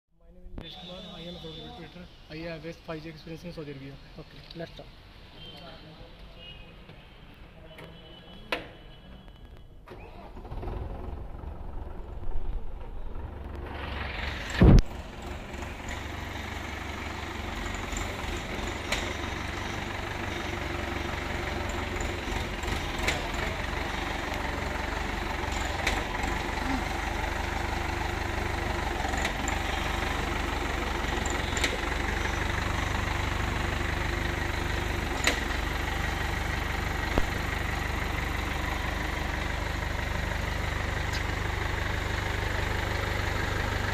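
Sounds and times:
forklift engine running: 9.9s - 43.9s.

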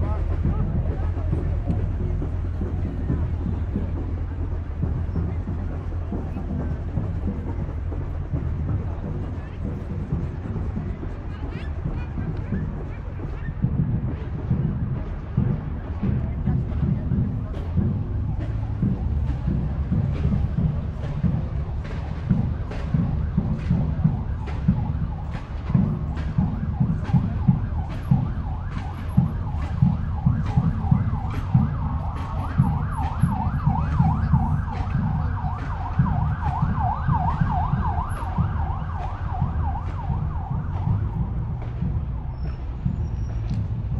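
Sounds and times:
marching band drum beat: 0.0s - 43.9s
siren yelping: 22.0s - 41.3s.

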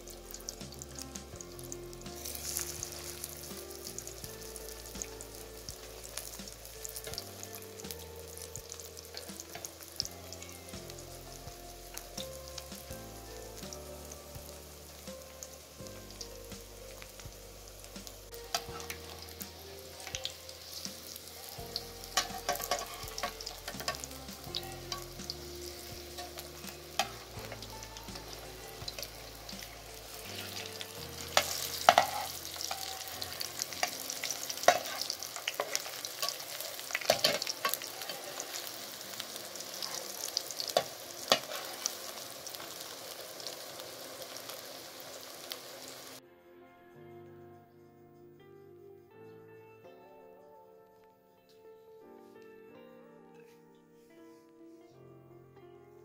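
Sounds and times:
patties sizzling in oil: 0.0s - 46.2s
metal spatula scraping pan: 18.5s - 42.7s.

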